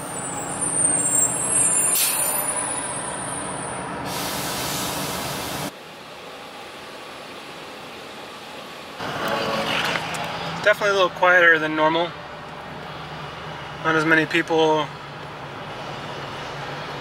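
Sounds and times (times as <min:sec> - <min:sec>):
car road and engine noise: 0:00.0 - 0:17.0
street background: 0:00.0 - 0:17.0
loud hiss: 0:04.0 - 0:05.7.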